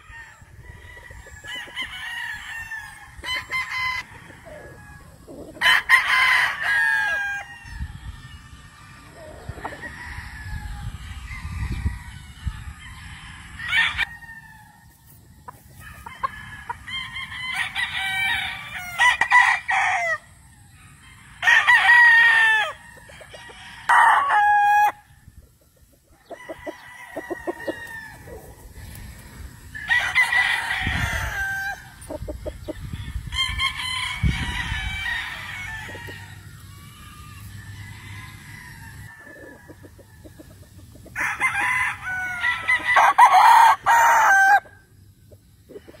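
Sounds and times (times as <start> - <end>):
roosters crowing and clucking: 0.0 - 46.0.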